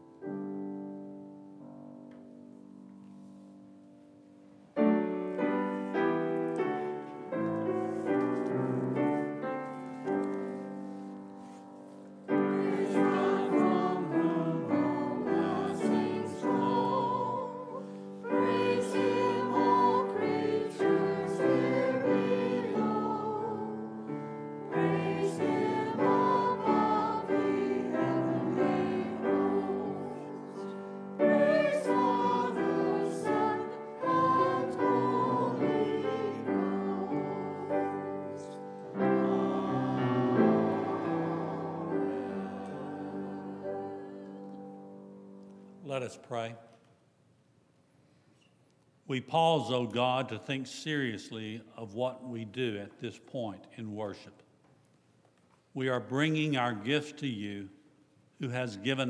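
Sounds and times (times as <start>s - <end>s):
piano accompaniment: 0.0s - 45.9s
congregation singing a hymn: 4.8s - 45.2s, 58.4s - 59.0s.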